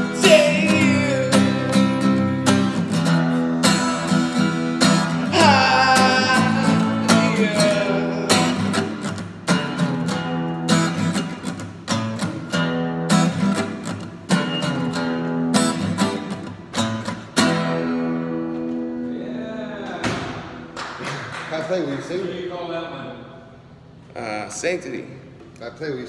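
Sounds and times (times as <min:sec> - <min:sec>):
man singing: 0:00.0 - 0:02.2, 0:05.1 - 0:09.0
acoustic guitar strumming: 0:00.0 - 0:19.2.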